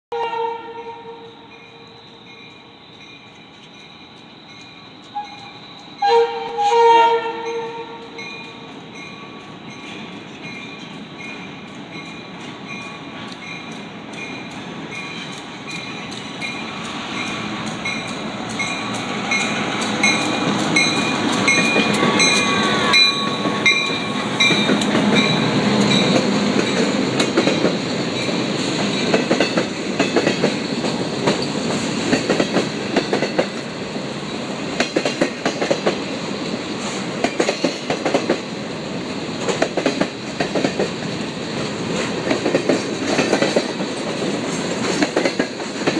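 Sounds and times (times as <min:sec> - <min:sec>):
diesel locomotives passing: 0:00.1 - 0:45.9
train wheels clacking over rail joints: 0:08.0 - 0:33.7, 0:34.7 - 0:36.1, 0:36.8 - 0:38.5, 0:39.4 - 0:45.9.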